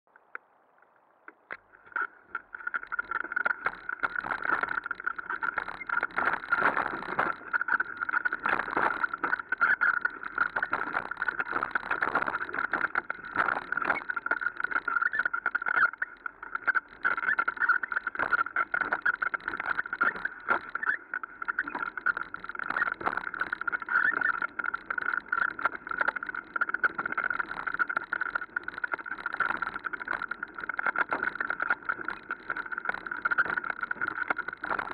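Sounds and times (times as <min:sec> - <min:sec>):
bike rattling over dirt trail: 0:01.6 - 0:15.7.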